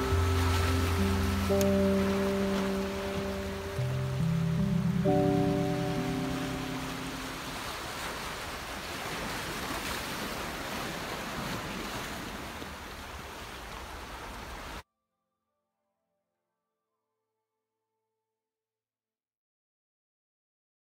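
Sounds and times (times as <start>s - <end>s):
background music: 0.0s - 7.6s
surf washing on rocky shore: 0.0s - 14.8s.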